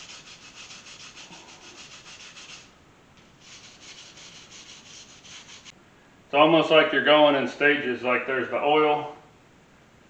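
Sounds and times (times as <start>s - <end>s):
wire brush scrubbing metal: 0.0s - 2.8s, 3.4s - 5.7s.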